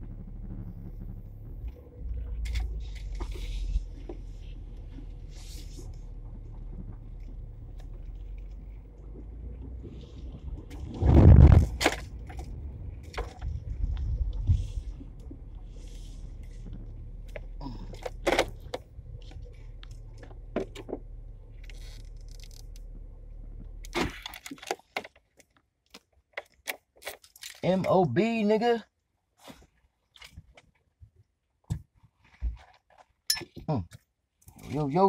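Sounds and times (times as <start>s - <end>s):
low rumble of moving car: 0.0s - 25.3s
clicks and small rattles: 23.8s - 28.0s.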